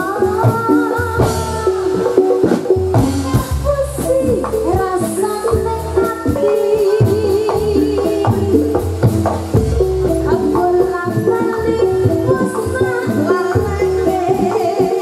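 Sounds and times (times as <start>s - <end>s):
drums beating: 0.0s - 15.0s
wavering melodic line: 7.8s - 13.8s.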